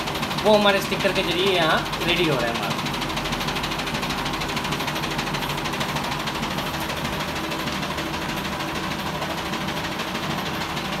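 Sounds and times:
printer machine noise with fast pulse: 0.0 - 11.0.

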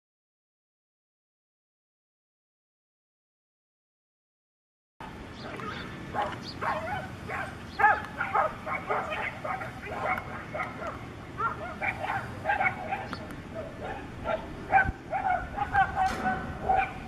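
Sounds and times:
dogs barking and yelping: 5.0 - 17.0
dogs whining: 5.4 - 17.0.

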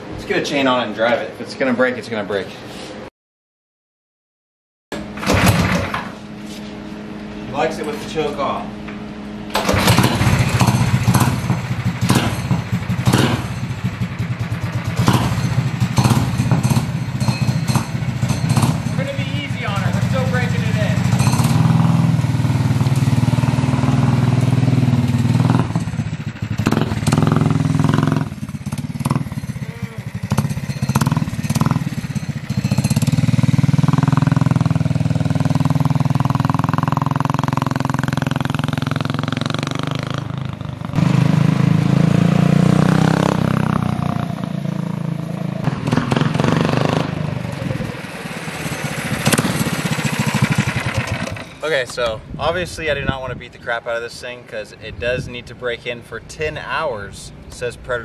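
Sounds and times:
go-kart engine revving: 5.0 - 6.0, 9.5 - 52.0.

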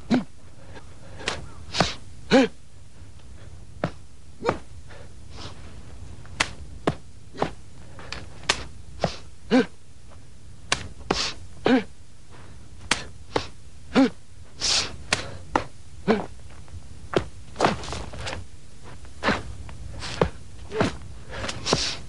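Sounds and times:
person grunting: 2.3 - 2.6, 9.5 - 9.8, 11.6 - 12.0, 13.9 - 14.2, 16.0 - 16.4.

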